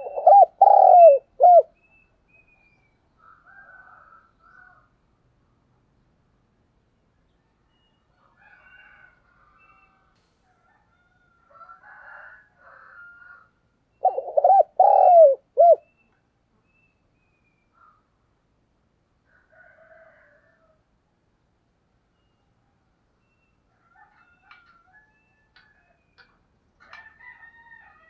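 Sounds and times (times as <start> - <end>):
dove cooing: 0.0 - 1.7, 14.0 - 15.8.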